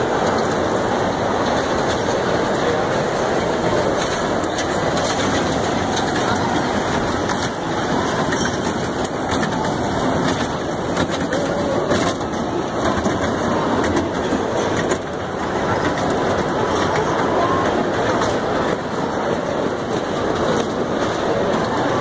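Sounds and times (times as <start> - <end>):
kiddie train rumbling and rattling: 0.0 - 22.0.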